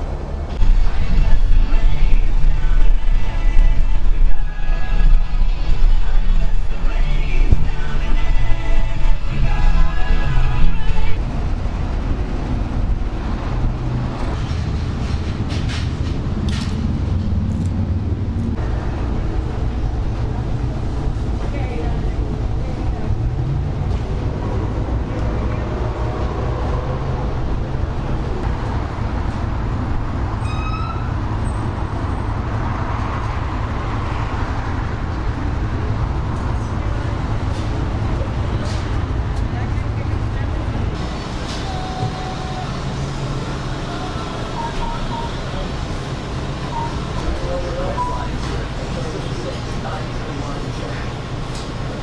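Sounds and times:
steady low rumble: 0.0 - 30.4
music: 0.6 - 11.2
short high squeak: 30.4 - 31.6.

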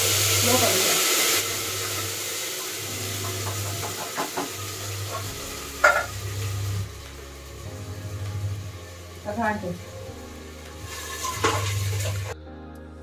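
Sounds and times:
sizzling in hot pot: 0.0 - 12.4.

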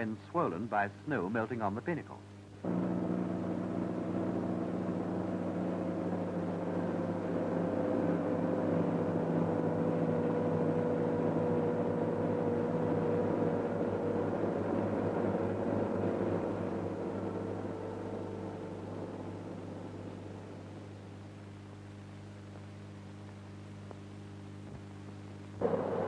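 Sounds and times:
truck engine running: 2.6 - 21.0, 25.6 - 26.0.

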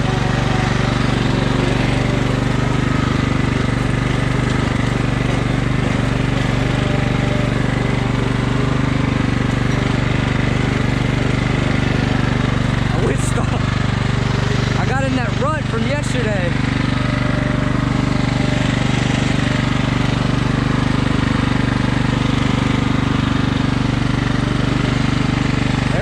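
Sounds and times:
riding lawn mower engine: 0.0 - 26.0.

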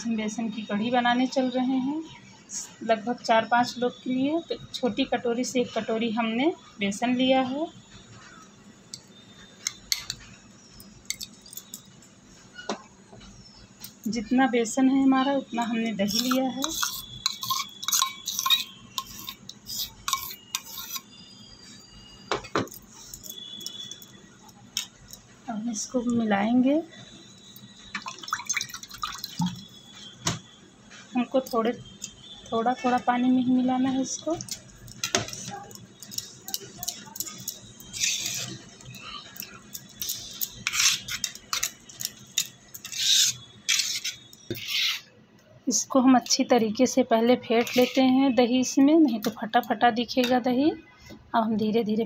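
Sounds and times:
metal spoon clinking in steel bowl: 8.9 - 10.2, 10.8 - 12.0, 15.6 - 21.1, 34.1 - 44.6
whisk scraping metal pan: 16.0 - 21.1, 36.8 - 38.7, 40.0 - 45.1, 47.6 - 48.1.

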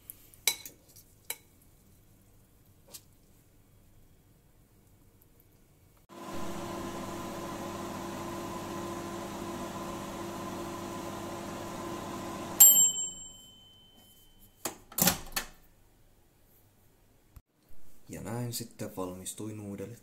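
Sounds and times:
microwave humming: 6.1 - 13.3
microwave ding: 12.4 - 14.3.

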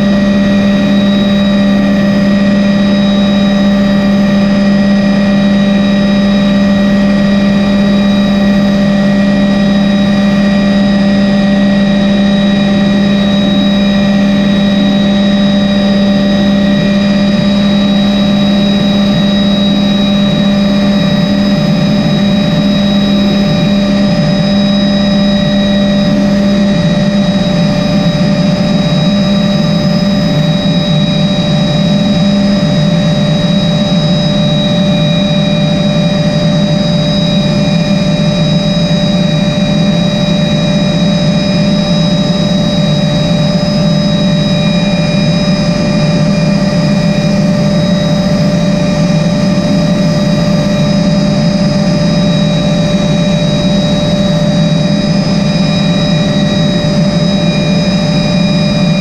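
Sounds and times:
helicopter cabin drone: 0.0 - 59.0
turbine engine whine: 0.0 - 59.0.

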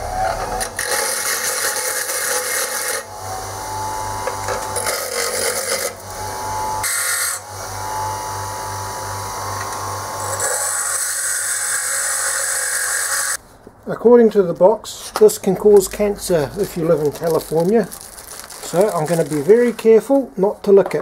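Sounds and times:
bench grinder motor hum: 0.0 - 13.4
tool bit grinding on wheel: 0.2 - 3.2, 4.2 - 6.2, 6.8 - 7.4, 9.6 - 13.4.

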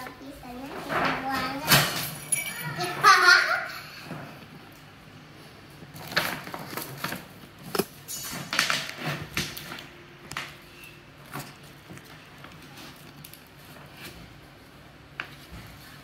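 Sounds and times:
wrapping paper rustling and crackling: 5.8 - 7.8, 11.2 - 16.0.

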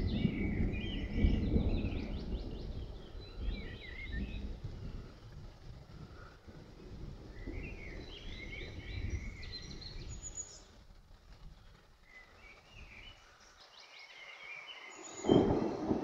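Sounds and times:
songbird singing: 0.0 - 5.8, 6.6 - 16.0
thunder clap: 15.2 - 16.0.

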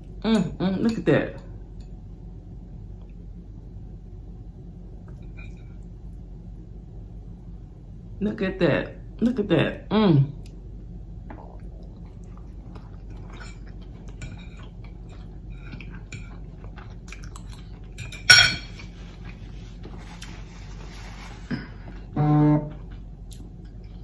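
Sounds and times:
chewing: 11.3 - 18.0
fork scraping a plate: 13.3 - 16.4.

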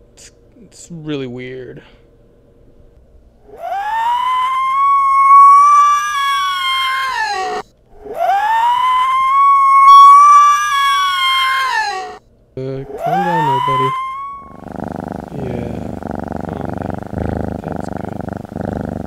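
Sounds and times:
creature screeching: 3.5 - 12.2, 12.9 - 14.6.

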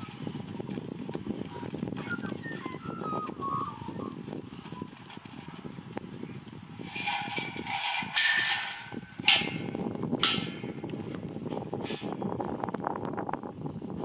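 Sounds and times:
dog's feet on dirt: 0.0 - 6.6
sheep hooves pattering: 0.0 - 8.2
metal panels clanking: 6.8 - 10.8, 11.8 - 12.3.

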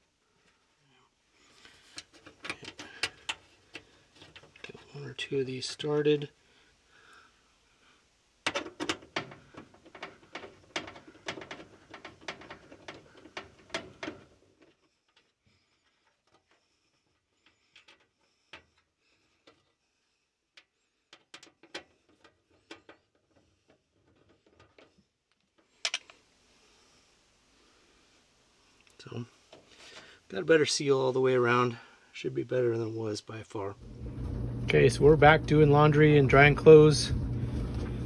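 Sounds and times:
clicks and metallic rattles: 1.9 - 4.8, 8.4 - 19.8, 20.5 - 26.2.

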